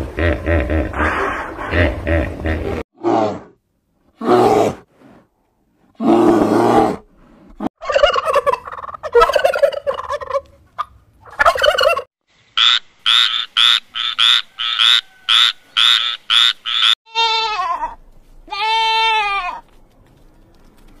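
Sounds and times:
goat bleating: 17.1 - 19.6.

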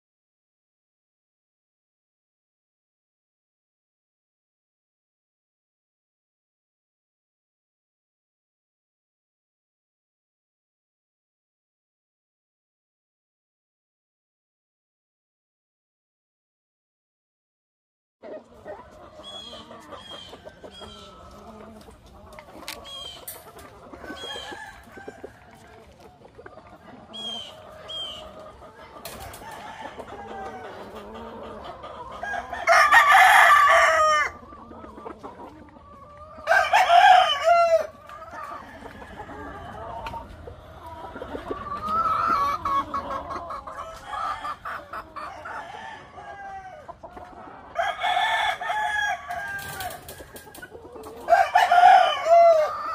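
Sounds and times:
chickens clucking: 18.2 - 52.9
rooster crowing: 32.2 - 34.4, 36.4 - 37.9, 47.8 - 49.9, 51.3 - 52.9.

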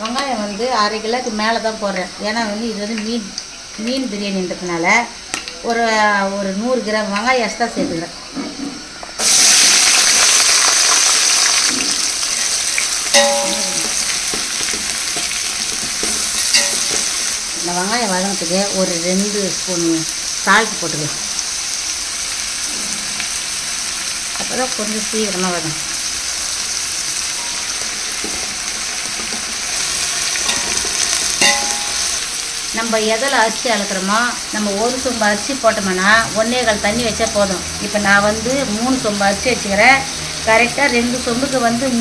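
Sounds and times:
onions sizzling in hot oil: 0.0 - 42.0
metal ladle knocking on pot: 13.2 - 17.2, 30.5 - 32.1.

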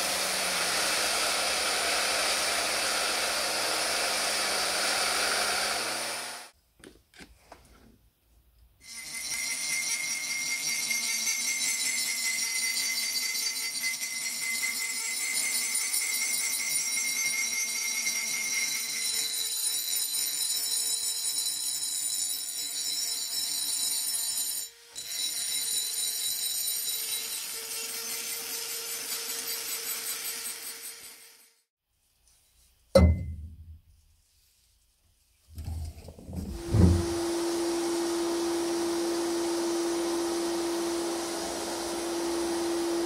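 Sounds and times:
rotary tool grinding metal: 0.0 - 6.5, 8.8 - 31.7.

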